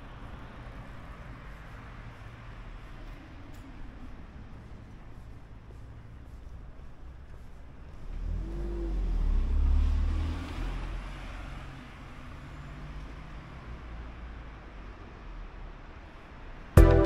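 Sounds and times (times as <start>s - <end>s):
car driving past: 8.0s - 15.8s.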